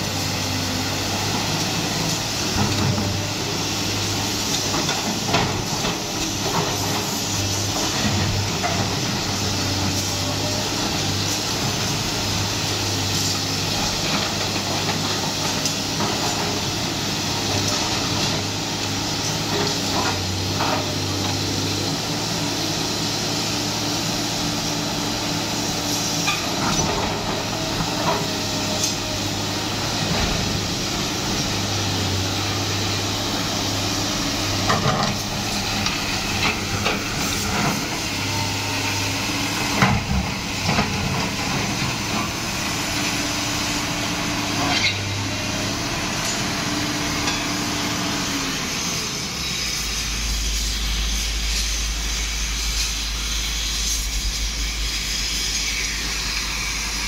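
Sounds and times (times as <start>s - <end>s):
excavator diesel engine running: 0.0s - 57.0s
hydraulic hiss: 48.0s - 57.0s.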